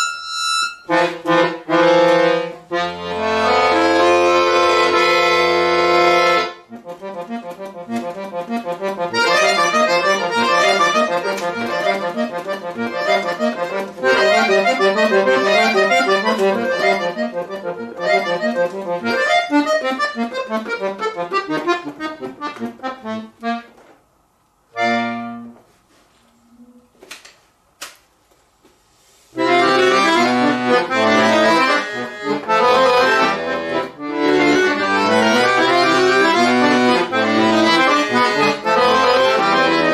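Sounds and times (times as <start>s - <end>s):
accordion playing: 0.0s - 23.8s, 24.7s - 25.8s, 29.3s - 39.9s.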